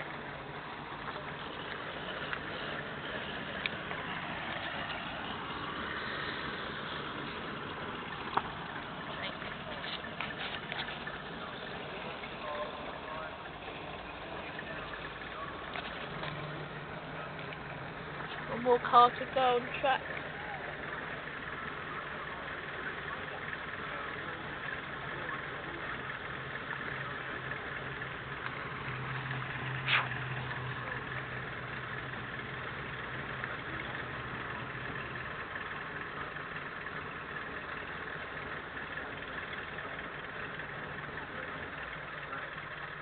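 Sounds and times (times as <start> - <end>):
car engine idling: 0.0 - 43.0.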